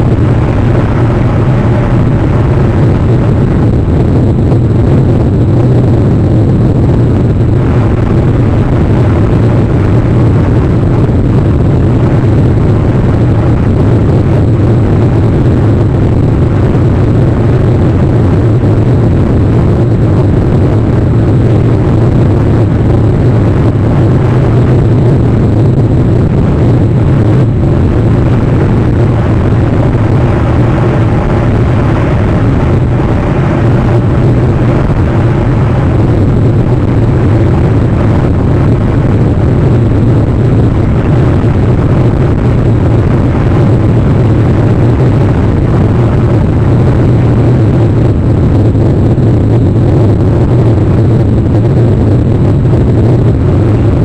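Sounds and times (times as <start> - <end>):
low rumble: 0.0 - 54.0.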